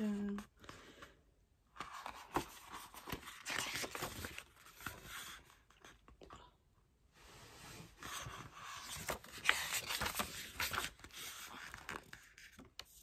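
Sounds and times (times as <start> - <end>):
paper pages rustling: 1.7 - 6.0, 8.0 - 13.0.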